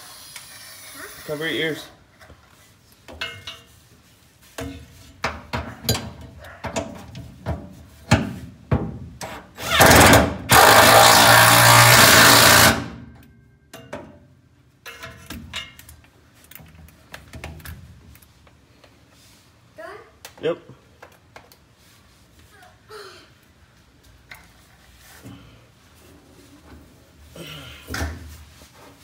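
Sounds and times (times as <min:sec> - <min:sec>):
cordless drill running: 0:09.7 - 0:12.9.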